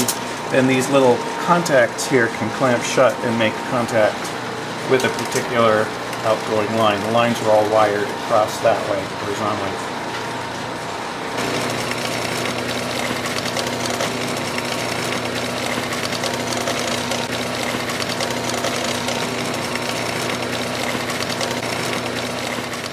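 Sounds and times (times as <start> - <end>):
electric motor hum: 3.2 - 22.9
dense mechanical rattle: 11.4 - 22.9.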